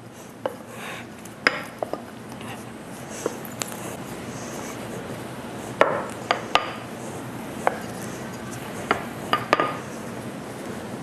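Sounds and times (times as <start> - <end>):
rolling pin rolling dough: 0.0 - 10.2
rolling pin knocking: 5.8 - 6.8.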